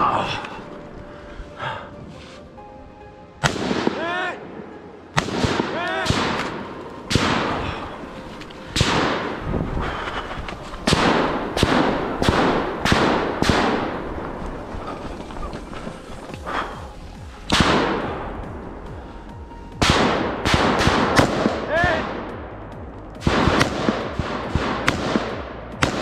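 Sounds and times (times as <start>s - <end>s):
rifle shots echoing: 3.4s - 4.5s, 5.1s - 9.6s, 10.7s - 15.1s, 17.4s - 18.7s, 19.8s - 22.6s, 23.2s - 26.0s.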